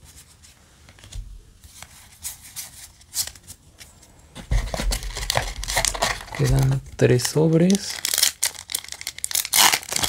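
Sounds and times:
foil pack crinkling: 4.6 - 10.0.

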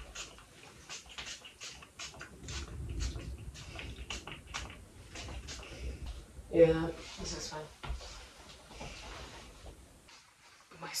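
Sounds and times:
spray bottle hissing: 0.0 - 6.0
clothing rustle: 4.8 - 11.0.

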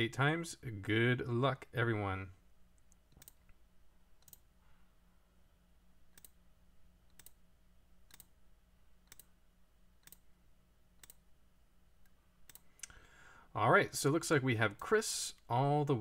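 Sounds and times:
faint low hum: 0.0 - 16.0
computer mouse clicking: 2.8 - 3.6, 4.2 - 4.5, 6.1 - 6.4, 7.1 - 7.4, 8.1 - 8.4, 9.0 - 9.3, 10.0 - 10.2, 11.0 - 11.2, 12.0 - 13.0.

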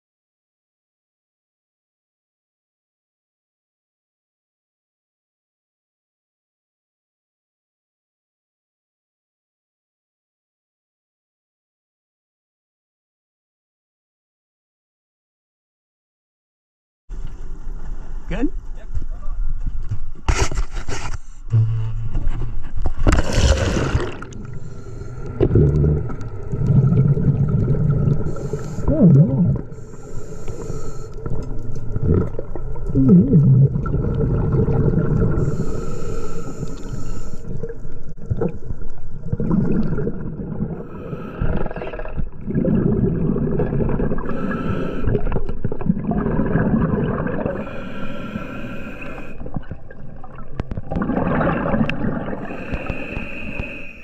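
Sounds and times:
exhaled bubbles rumbling underwater: 22.7 - 53.7
splash of diver entering water: 23.1 - 24.3
hissing regulator inhalations: 23.8 - 26.9, 28.1 - 31.7, 35.4 - 37.6, 40.8 - 42.0, 44.2 - 45.4, 47.5 - 49.4, 52.4 - 54.0.

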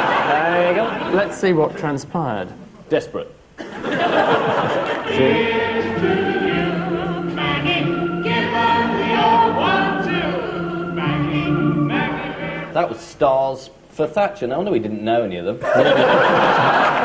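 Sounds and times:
choir singing: 4.4 - 12.8.

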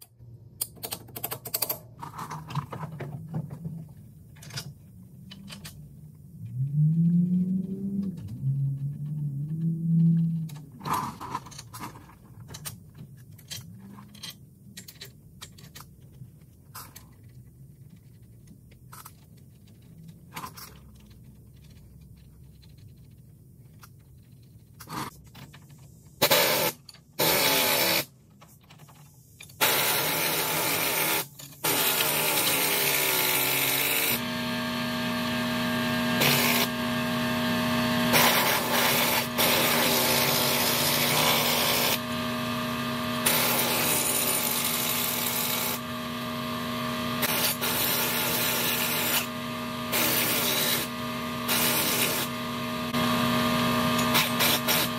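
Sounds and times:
metallic clicks and knocks: 0.0 - 3.1
air impact wrench: 26.2 - 28.1, 29.6 - 54.9.

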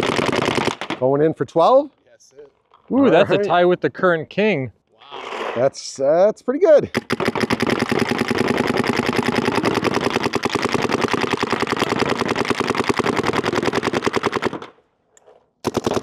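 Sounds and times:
paintball marker rapid firing: 0.0 - 1.0, 6.9 - 14.8, 15.6 - 16.0.

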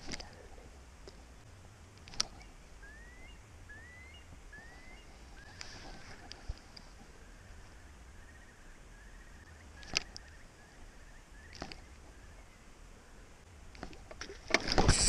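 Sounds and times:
sharp clicks: 1.9 - 2.5, 9.8 - 10.4.

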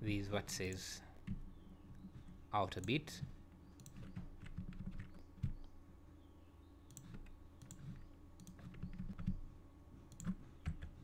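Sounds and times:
mouse clicking: 3.6 - 5.7, 6.9 - 9.4
keyboard keys clicking: 3.8 - 5.7, 10.1 - 11.0.

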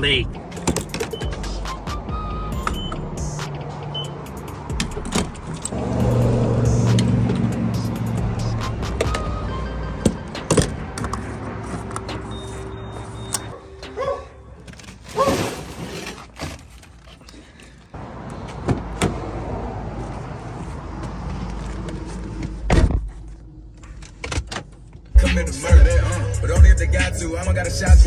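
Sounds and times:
fuel cap and fuel door clicking: 0.5 - 1.4, 4.7 - 5.8, 10.0 - 12.3
car door thudding shut: 22.7 - 23.2.

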